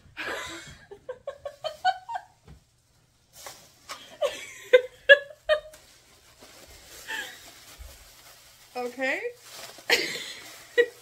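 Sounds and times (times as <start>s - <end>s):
woman laughing: 0.2s - 2.3s, 4.2s - 5.8s, 9.9s - 11.0s
plastic bag rustling: 1.3s - 11.0s.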